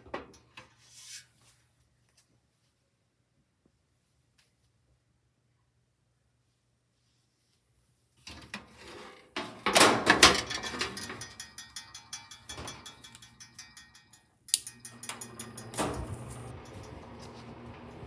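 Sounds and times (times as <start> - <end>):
fan metallic ticking rattle: 9.8 - 17.8.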